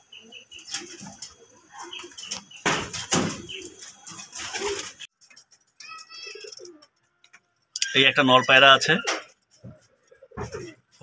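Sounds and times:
pigeons cooing: 0.0 - 5.1, 9.0 - 11.0
wings flapping: 0.6 - 5.1.

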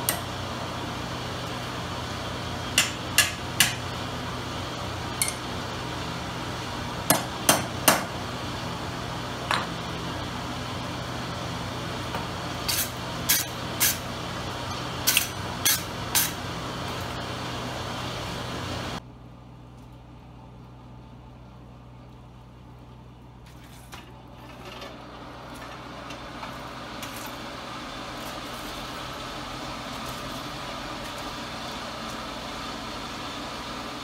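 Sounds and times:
steady machine hum: 0.0 - 34.0
metal strikes on anvil: 2.8 - 3.9, 5.2 - 5.4.

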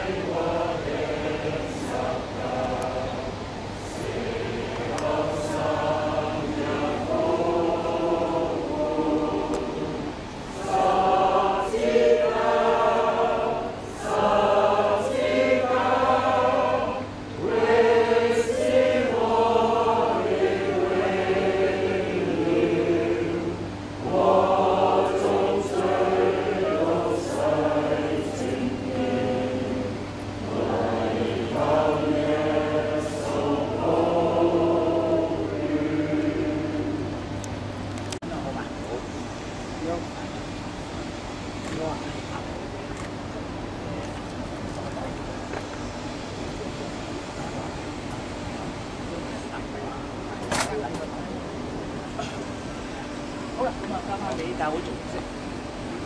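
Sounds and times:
group singing a hymn: 0.0 - 38.0.

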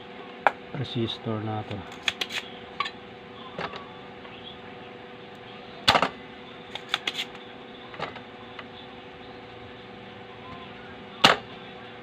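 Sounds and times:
desoldering pump snap: 1.9 - 2.5.

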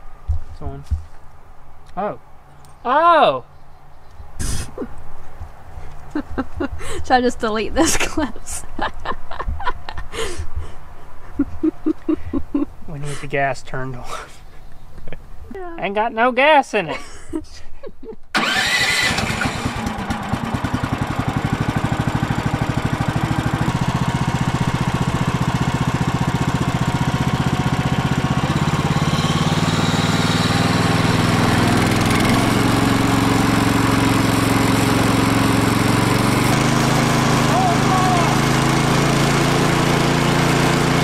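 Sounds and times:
gasoline engine starting and running: 18.3 - 41.0.

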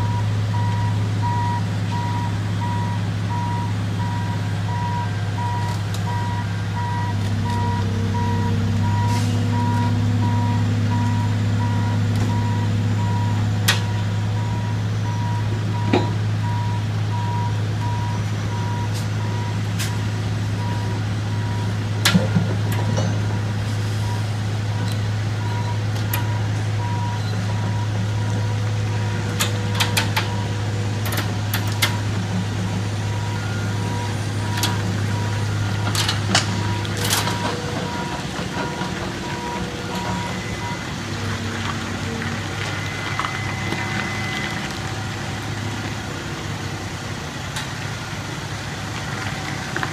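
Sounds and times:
backup alarm beeping: 0.0 - 19.6, 33.1 - 41.0, 42.6 - 45.4
diesel machinery engine drone: 0.0 - 49.9.

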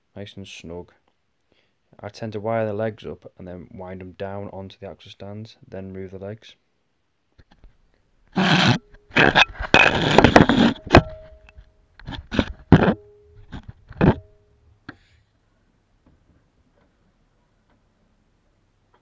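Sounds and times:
scrapes and knocks on concrete: 8.4 - 11.4, 12.0 - 14.2.

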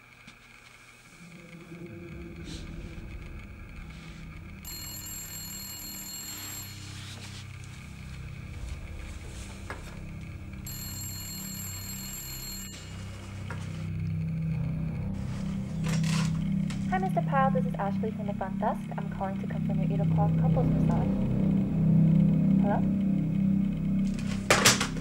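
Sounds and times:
low steady drone: 0.0 - 25.0
telephone ringing: 4.6 - 8.1, 10.6 - 13.9.

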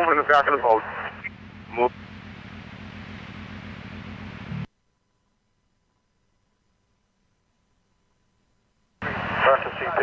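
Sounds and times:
radio static hiss: 0.0 - 1.9, 9.0 - 10.0
low pulsing buzz: 0.5 - 4.7.

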